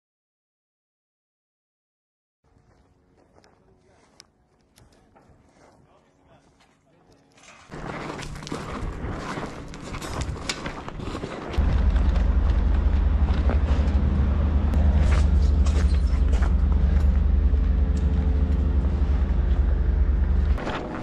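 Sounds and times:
loud low rumble: 0:11.6 - 0:21.0.

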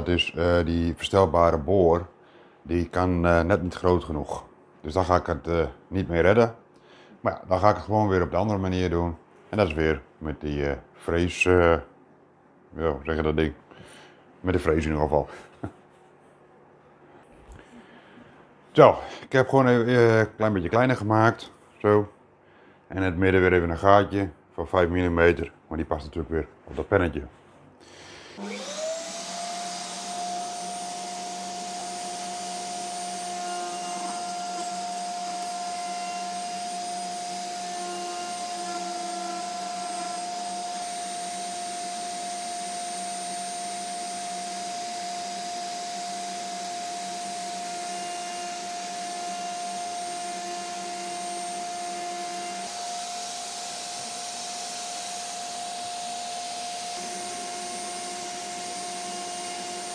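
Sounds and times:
wood router motor whine: 0:28.3 - 0:59.9
router bit cutting plastic: 0:28.4 - 0:43.5, 0:44.1 - 0:59.9.

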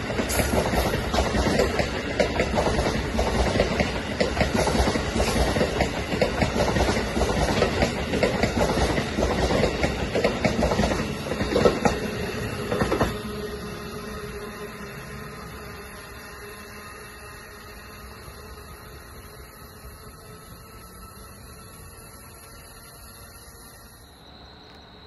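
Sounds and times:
train wheels clicking on rail joints: 0:00.0 - 0:13.6.

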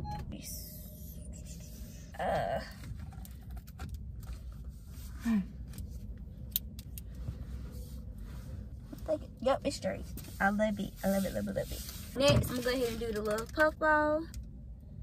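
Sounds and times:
low steady hum: 0:00.0 - 0:15.0
cover rubbing on steering wheel: 0:09.9 - 0:13.0.

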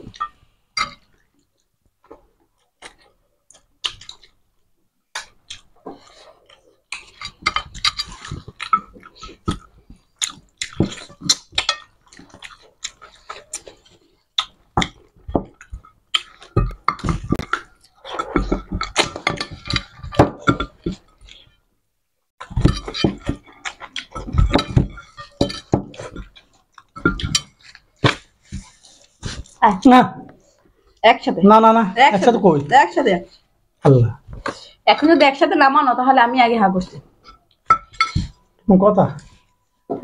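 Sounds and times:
wet chewing and lip-smacking: 0:01.0 - 0:04.4, 0:05.1 - 0:20.1, 0:22.4 - 0:24.4, 0:25.0 - 0:29.6.

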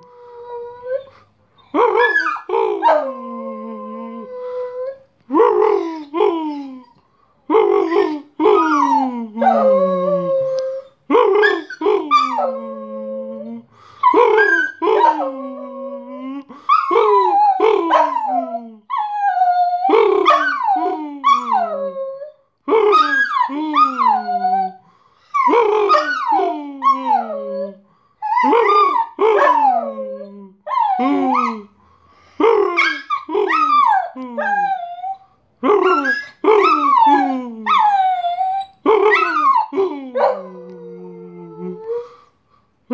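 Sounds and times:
dog howling: 0:25.4 - 0:31.7, 0:32.6 - 0:42.1.

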